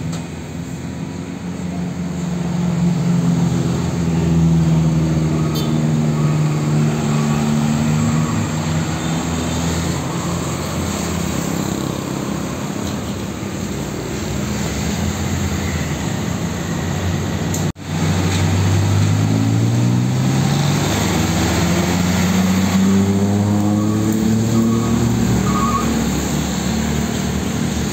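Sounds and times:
diesel truck engine: 0:00.0 - 0:27.9
tyre and traffic noise: 0:00.0 - 0:27.9
truck accelerating past: 0:02.5 - 0:12.8, 0:17.8 - 0:27.9.

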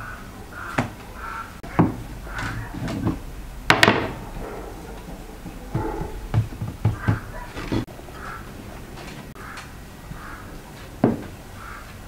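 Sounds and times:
rolling pin knocking on wooden board: 0:05.7 - 0:07.8.

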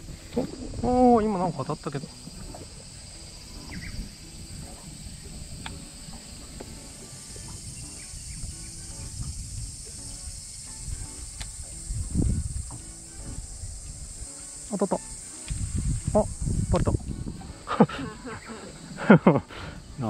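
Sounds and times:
cicadas buzzing: 0:00.0 - 0:20.0
faint clicks: 0:05.6 - 0:06.8.

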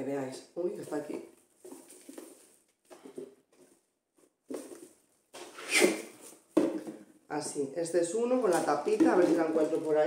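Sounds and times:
plastic containers scraping and rustling: 0:08.1 - 0:10.0.

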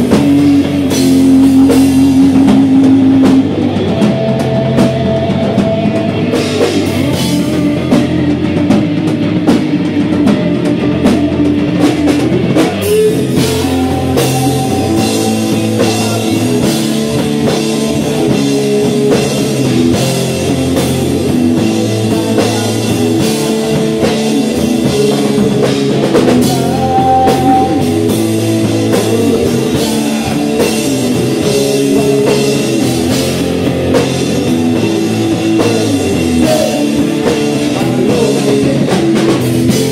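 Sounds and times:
drum kit: 0:00.0 - 0:39.9
electric guitar: 0:00.0 - 0:39.9.

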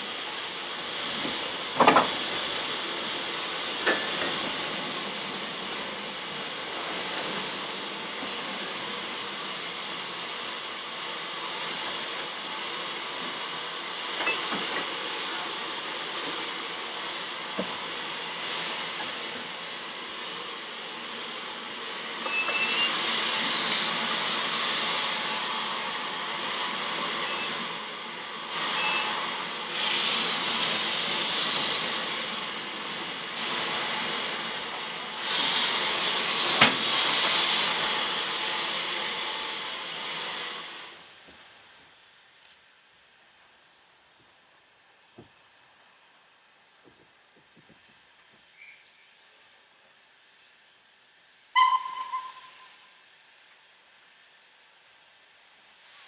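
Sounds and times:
loud steam bursts hissing: 0:00.0 - 0:42.2, 0:50.2 - 0:56.0
steam locomotive low hiss: 0:00.0 - 0:56.0.

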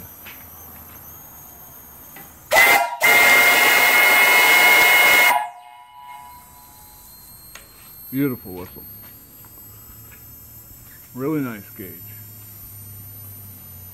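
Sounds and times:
steam whistle blowing: 0:02.5 - 0:07.0.

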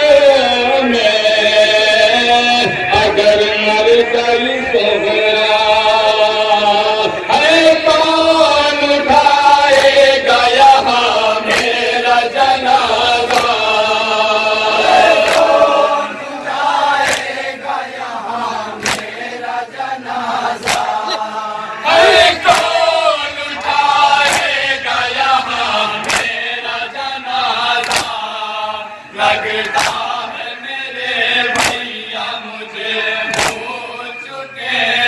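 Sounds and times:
men chanting a mourning lament: 0:00.0 - 0:35.0
hands slapping chests: 0:09.7 - 0:10.0, 0:11.4 - 0:11.9, 0:13.2 - 0:13.8, 0:14.9 - 0:15.6, 0:17.0 - 0:17.4, 0:18.7 - 0:19.2, 0:20.5 - 0:21.2, 0:22.4 - 0:22.8, 0:23.6 - 0:24.6, 0:26.0 - 0:26.4, 0:27.8 - 0:28.3, 0:29.6 - 0:30.1, 0:31.5 - 0:31.9, 0:33.3 - 0:33.7.

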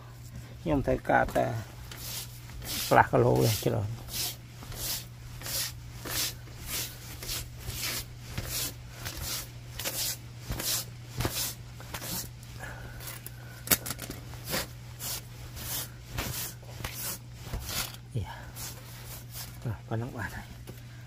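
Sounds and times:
sponge scrubbing wire grill grate: 0:01.0 - 0:12.4, 0:14.3 - 0:19.7.

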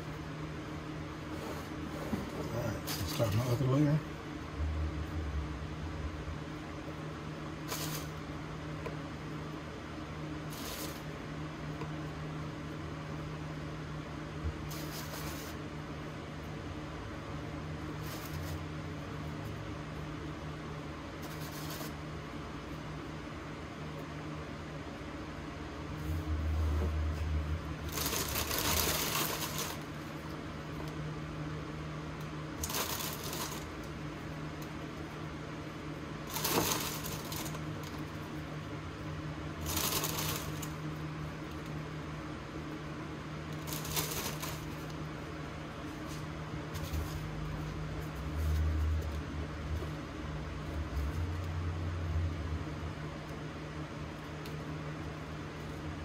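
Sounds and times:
low appliance hum: 0:00.0 - 0:56.0
cookies rustling: 0:27.8 - 0:30.0, 0:32.6 - 0:34.0, 0:36.2 - 0:38.4, 0:39.6 - 0:40.9, 0:43.6 - 0:44.9.

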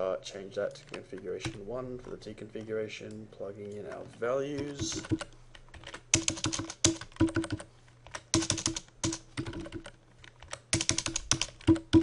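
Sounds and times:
typing on keyboard: 0:04.6 - 0:12.0.

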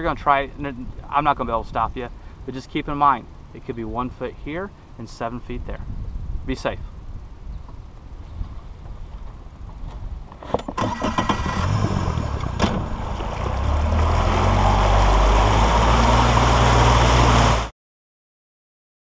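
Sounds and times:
outboard motor throttling up: 0:10.8 - 0:17.7.

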